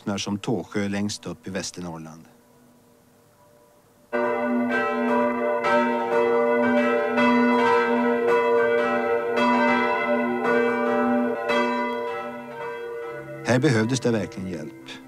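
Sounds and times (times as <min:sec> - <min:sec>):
church bell ringing: 0:04.1 - 0:15.0.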